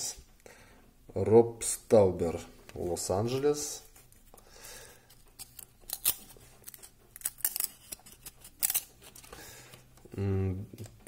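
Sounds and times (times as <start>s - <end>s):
trading cards rustling and clicking: 3.9s - 10.1s.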